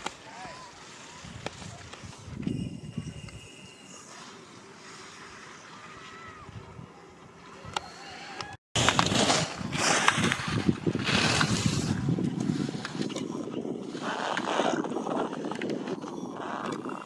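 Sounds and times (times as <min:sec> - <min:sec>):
wind on microphone: 0:01.1 - 0:03.7, 0:08.8 - 0:17.0.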